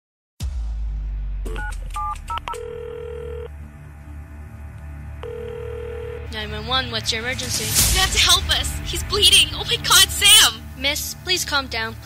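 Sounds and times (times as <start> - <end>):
low music drone: 0.5 - 12.0
telephone ringing tone: 2.4 - 3.5, 5.2 - 6.3.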